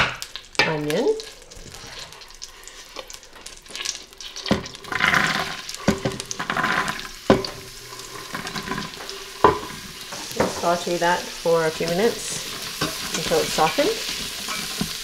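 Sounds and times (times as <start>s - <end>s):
vegetables sizzling in butter: 0.0s - 15.0s.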